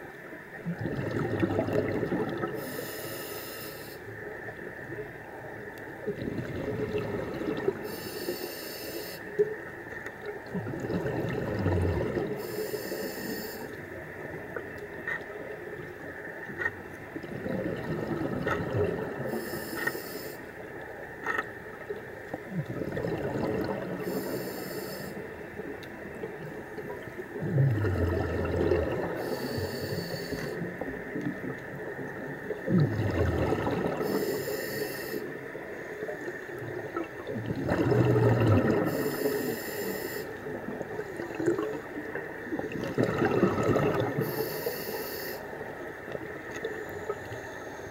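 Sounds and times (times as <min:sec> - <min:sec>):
exhaled bubbles rumbling: 0:00.6 - 0:02.7, 0:04.4 - 0:08.0, 0:09.4 - 0:12.6, 0:13.7 - 0:19.5, 0:21.0 - 0:24.4, 0:25.2 - 0:34.5, 0:35.4 - 0:39.6, 0:40.4 - 0:44.4
regulator hissing inhale: 0:02.6 - 0:04.1, 0:07.8 - 0:09.3, 0:12.4 - 0:13.8, 0:19.3 - 0:20.5, 0:24.0 - 0:25.3, 0:29.2 - 0:30.6, 0:34.0 - 0:35.8, 0:38.9 - 0:40.4, 0:44.2 - 0:45.6
faint clicks: 0:13.0 - 0:17.3, 0:19.5 - 0:22.5, 0:25.7 - 0:27.2, 0:46.0 - 0:47.8.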